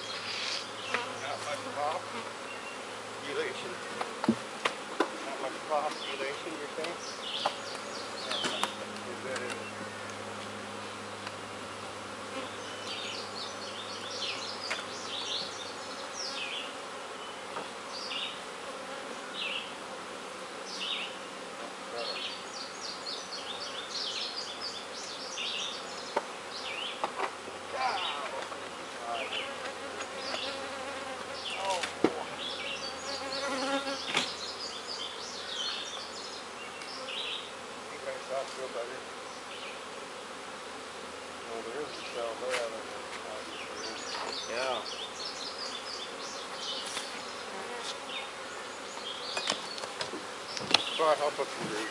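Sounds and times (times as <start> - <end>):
bees buzzing: 0.0 - 51.9
knocks on wooden hive boxes: 3.9 - 5.2, 6.8 - 9.6, 49.3 - 51.0.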